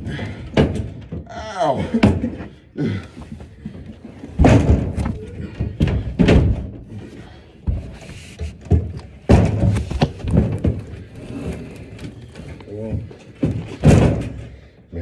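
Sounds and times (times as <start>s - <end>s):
heavy furniture thudding on stairs: 3.5s - 8.0s.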